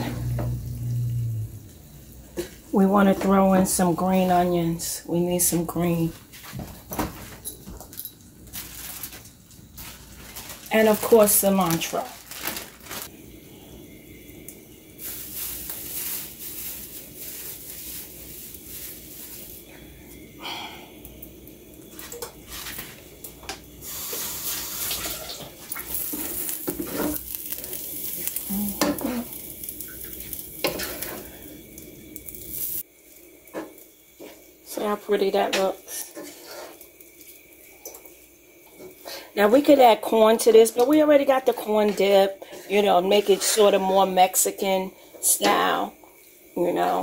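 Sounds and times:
frying hiss: 0.0s - 47.0s
wooden spoon scraping pot: 35.9s - 36.8s, 41.8s - 43.8s.

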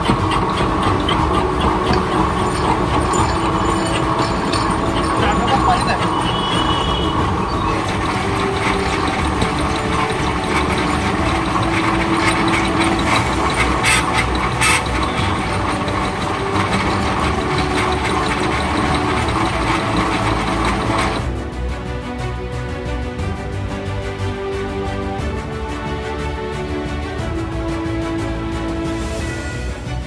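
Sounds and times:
metal lathe cutting: 0.0s - 21.3s.

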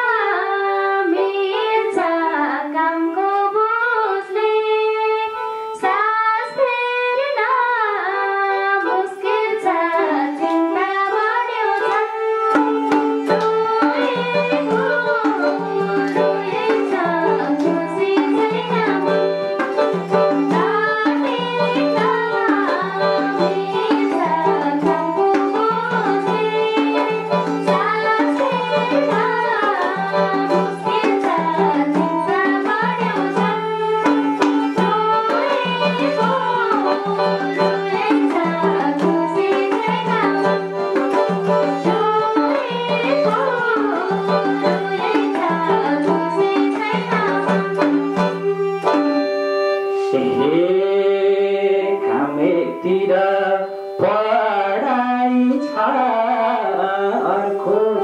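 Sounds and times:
woman singing into microphone: 0.0s - 58.0s
electronic keyboard melody: 7.5s - 46.7s, 47.4s - 58.0s
hand-drum beat: 11.7s - 49.4s.

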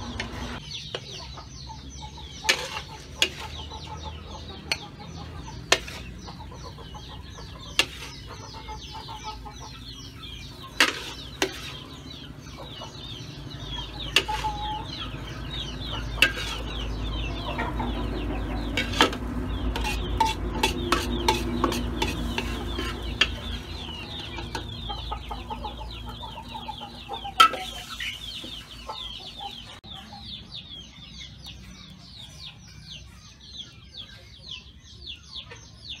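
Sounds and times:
metal spatula scraping a wok: 2.3s - 3.8s, 5.6s - 6.3s, 7.7s - 8.5s, 10.7s - 12.0s, 14.1s - 14.7s, 16.1s - 16.9s, 18.6s - 24.7s, 27.3s - 28.3s
spatula clanking against pan: 2.4s - 3.6s, 5.6s - 6.1s, 7.7s - 8.3s, 10.7s - 11.8s, 14.1s - 14.6s, 16.0s - 16.8s, 18.6s - 24.8s, 27.3s - 27.7s.

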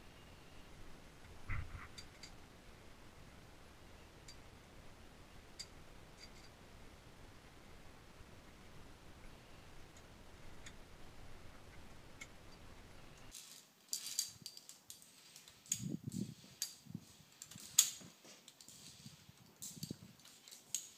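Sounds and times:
faint steady hiss: 0.0s - 20.9s
carabiners clicking on steel cable: 13.3s - 20.9s.

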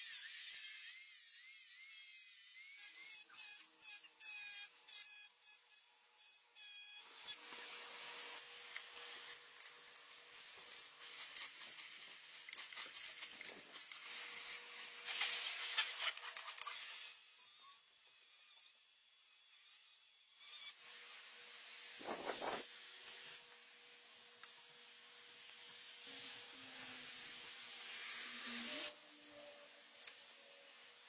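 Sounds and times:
rotary tool whining cutting wood: 0.0s - 23.4s.

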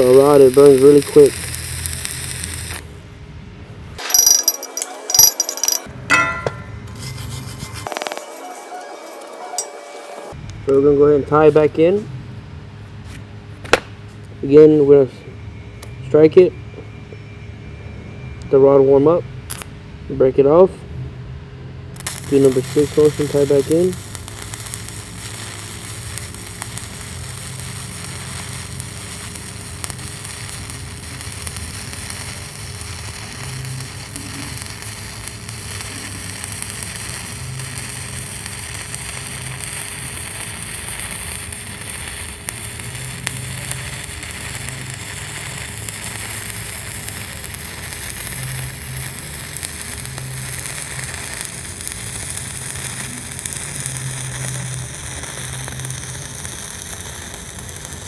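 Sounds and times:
welding arc crackling: 0.0s - 2.9s, 22.0s - 58.0s.

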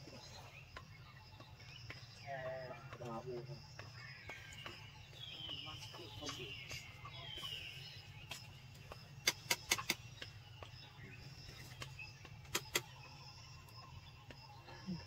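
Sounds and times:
sharp clicks: 9.2s - 10.4s, 11.7s - 13.1s.

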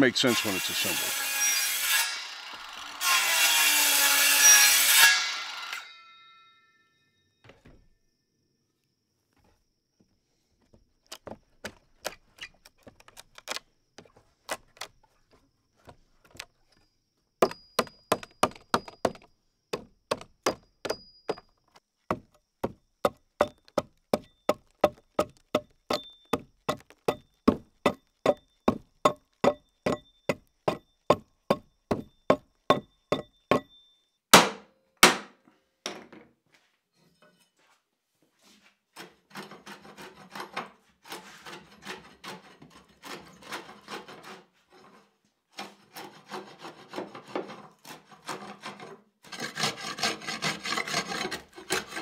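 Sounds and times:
hammer striking chisel: 17.4s - 21.5s, 22.1s - 35.3s.

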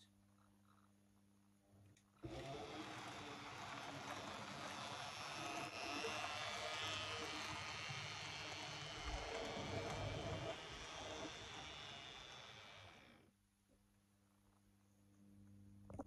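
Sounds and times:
model train motor and wheels on rails: 2.2s - 13.3s.

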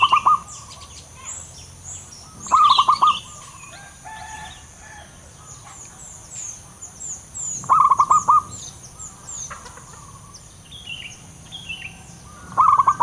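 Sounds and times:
dove staccato cooing: 0.0s - 0.9s, 2.2s - 5.9s, 7.6s - 10.6s, 11.2s - 13.0s
small birds chirping: 0.0s - 13.0s.

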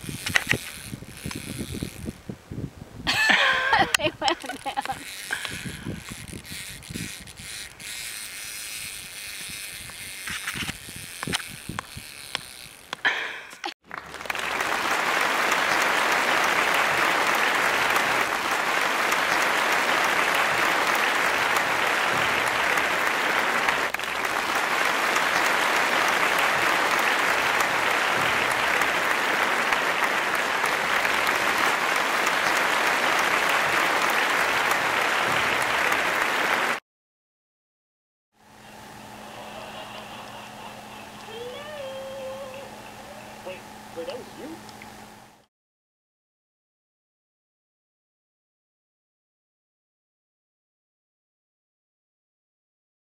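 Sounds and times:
crowd applauding: 3.1s - 6.6s, 13.1s - 36.8s, 39.2s - 44.2s.

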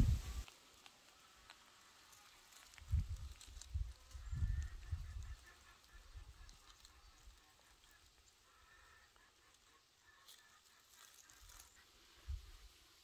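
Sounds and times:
faint thin calls: 3.5s - 12.9s.

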